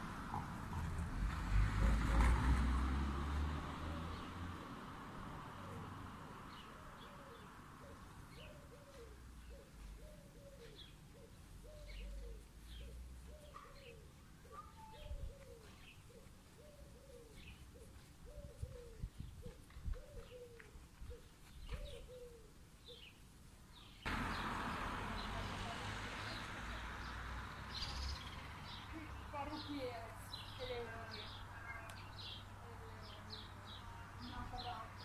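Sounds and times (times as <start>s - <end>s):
birds cooing: 5.6s - 23.1s.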